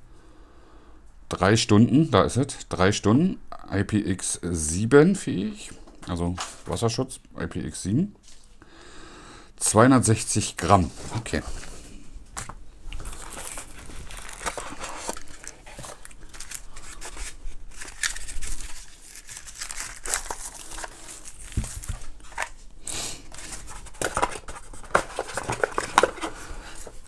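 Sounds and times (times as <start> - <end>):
cardboard and paper rustling: 12.4 - 22.6, 23.2 - 27.0.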